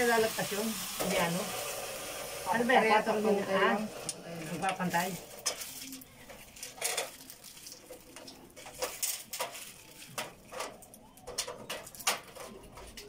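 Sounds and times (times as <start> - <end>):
hard objects clattering and scraping: 4.8 - 13.0.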